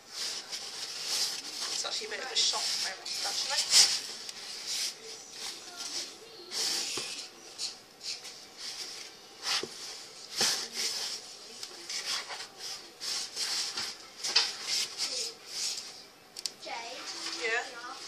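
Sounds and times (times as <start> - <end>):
hands rubbing dough in bowl: 0.0 - 6.0.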